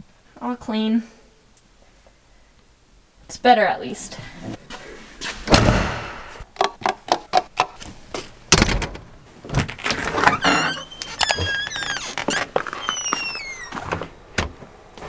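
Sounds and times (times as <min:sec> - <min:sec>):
heavy door thud: 0:05.5 - 0:06.3, 0:08.5 - 0:10.8
door knob turning and door opening: 0:08.6 - 0:14.6
high squeaky falling notes: 0:10.3 - 0:13.8.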